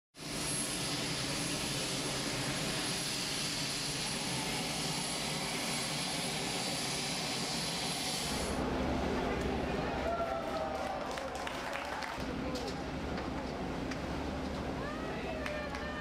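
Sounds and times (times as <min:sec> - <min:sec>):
aircraft turbine engine whine: 0:00.2 - 0:10.2.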